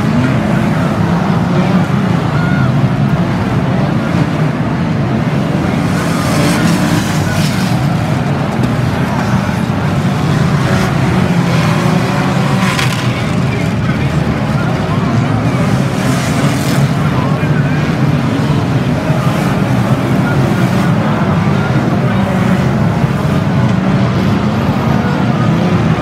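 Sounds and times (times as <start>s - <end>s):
racing car engines: 0.0s - 26.0s.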